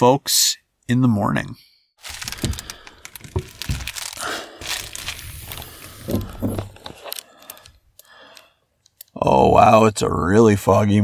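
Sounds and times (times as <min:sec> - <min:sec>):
crinkling and rustling: 0:02.0 - 0:09.2.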